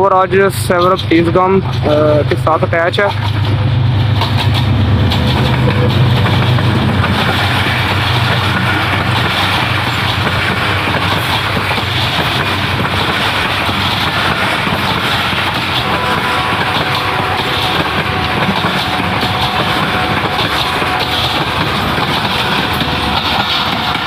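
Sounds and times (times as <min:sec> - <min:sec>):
diesel locomotive engine: 0:00.0 - 0:24.0
train wheels rumbling on rails: 0:00.0 - 0:24.0.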